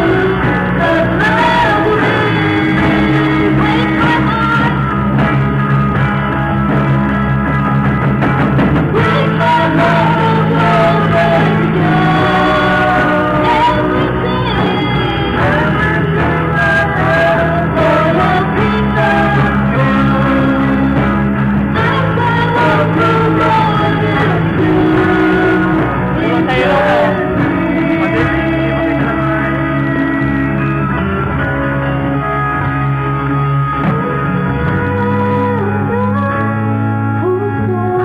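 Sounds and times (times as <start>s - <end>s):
woman singing: 0.0s - 5.0s, 8.9s - 21.1s, 21.7s - 30.4s
rock band playing: 0.0s - 38.0s.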